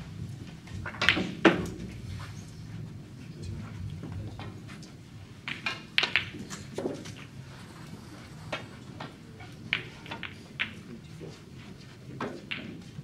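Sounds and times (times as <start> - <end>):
low room hum: 0.0 - 13.0
snooker ball clicks and taps: 0.8 - 1.8, 5.5 - 7.3, 8.5 - 11.4, 12.1 - 13.0.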